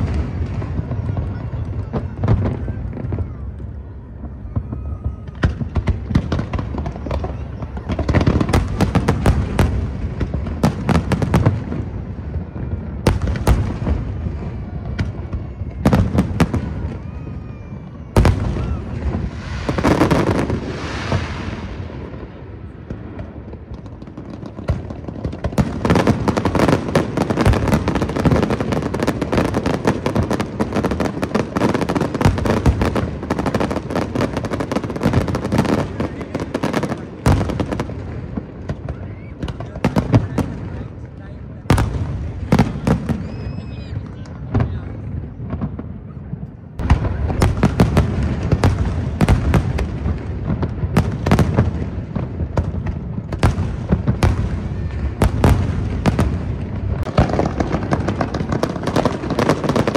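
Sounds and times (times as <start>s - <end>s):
fireworks bangs and booms: 0.0s - 59.9s
fireworks crackling and popping: 0.0s - 59.9s
firework hissing: 18.1s - 22.8s.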